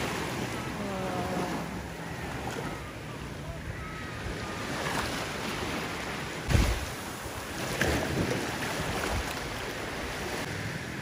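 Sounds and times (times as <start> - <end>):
sea waves washing on beach: 0.0 - 11.0.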